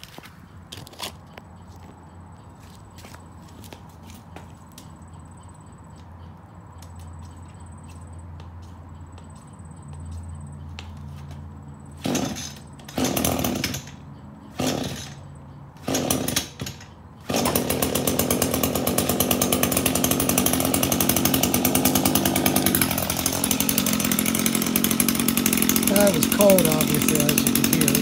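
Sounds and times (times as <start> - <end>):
string trimmer sputtering and running: 11.8 - 15.2, 15.8 - 28.0
starter cord pulls: 20.3 - 28.0.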